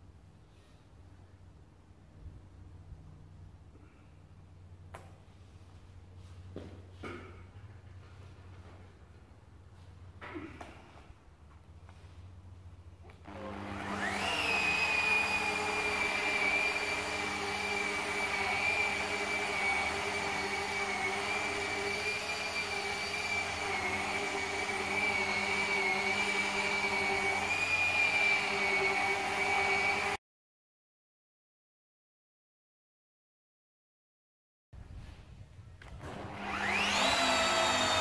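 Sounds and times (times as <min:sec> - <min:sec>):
electric motor whining: 0:13.1 - 0:30.2, 0:36.0 - 0:38.0.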